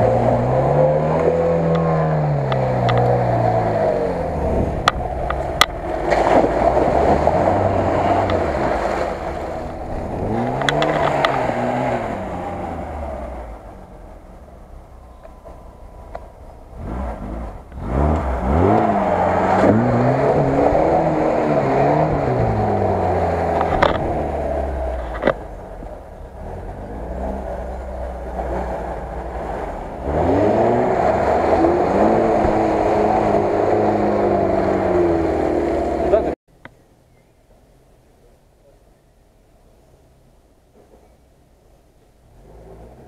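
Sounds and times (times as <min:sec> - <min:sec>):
engine revving hard: 0:00.0 - 0:13.7, 0:16.7 - 0:25.0, 0:26.4 - 0:36.4.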